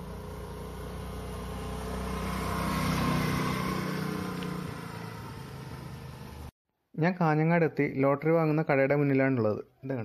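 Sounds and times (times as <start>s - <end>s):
scooter engine hum: 0.0s - 6.5s.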